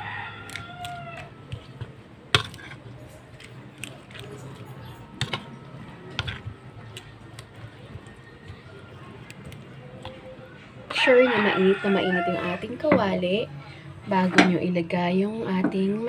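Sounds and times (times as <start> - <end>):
spoon clinking and scraping bowl: 2.4 - 2.8.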